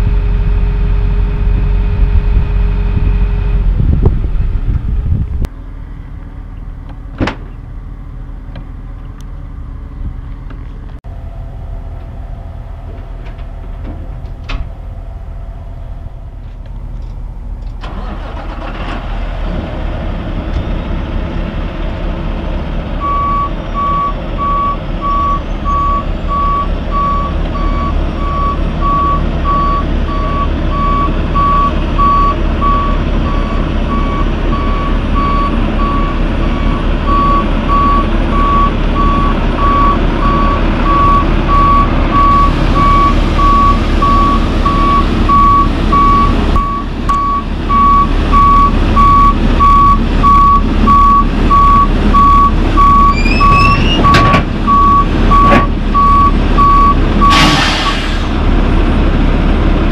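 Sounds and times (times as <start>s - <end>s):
diesel truck engine running: 0.0s - 59.9s
backup alarm beeping: 23.0s - 57.4s.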